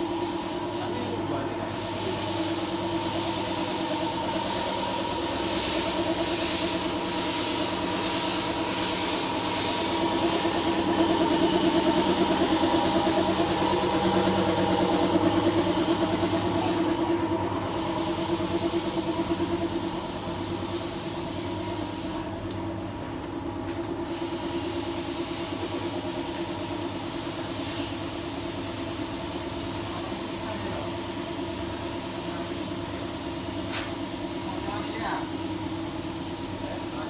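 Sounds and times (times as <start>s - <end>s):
hiss: 0.0s - 22.3s, 24.0s - 37.0s
engine idling: 7.8s - 21.8s.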